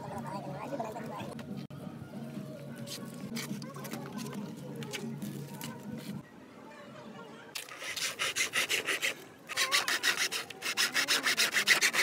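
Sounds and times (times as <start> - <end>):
hand saw cutting bamboo: 7.6 - 12.0.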